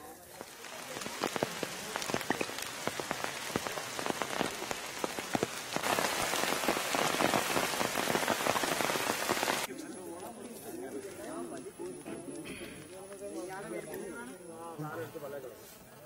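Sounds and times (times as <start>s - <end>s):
rain on foliage: 0.0s - 10.4s.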